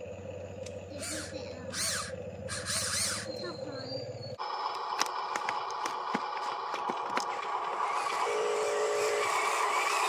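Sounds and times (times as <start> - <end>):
lower motor whine: 0.0 - 10.0
electric motor whine: 0.6 - 3.4, 7.2 - 10.0.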